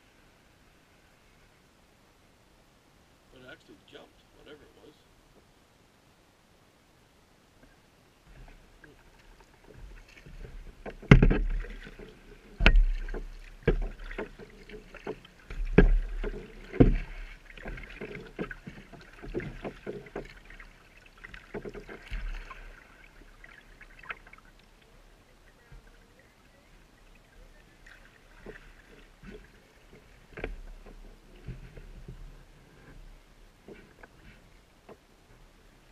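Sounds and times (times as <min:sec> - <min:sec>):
water splashing and dripping: 0:08.8 - 0:31.1
paddle knocking into water: 0:09.6 - 0:24.4.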